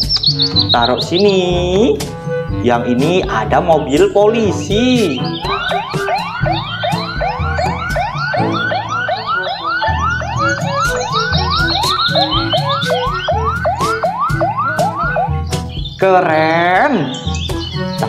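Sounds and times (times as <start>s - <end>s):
police siren yelping: 5.0s - 15.9s.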